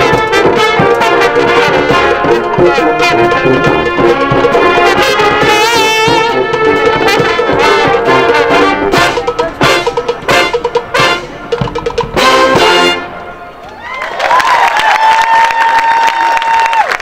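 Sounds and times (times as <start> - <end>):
military brass band playing salsa: 0.0 - 13.6
trombone solo: 0.0 - 13.6.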